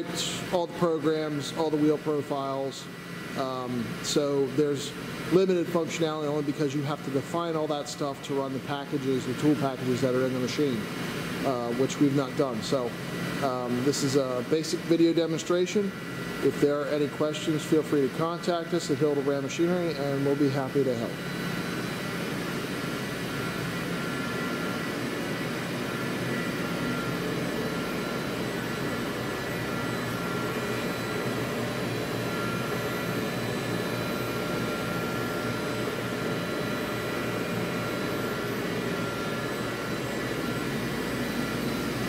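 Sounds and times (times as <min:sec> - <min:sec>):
grinder mechanical whir: 0:11.4 - 0:42.0.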